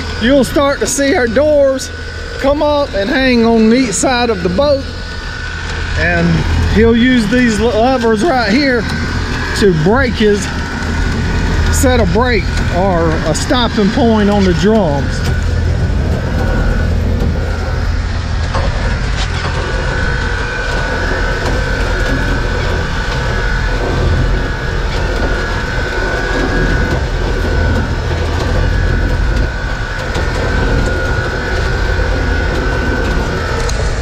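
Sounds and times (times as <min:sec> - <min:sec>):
boat engine low rumble: 0:00.0 - 0:34.0
winch high whine: 0:00.0 - 0:34.0.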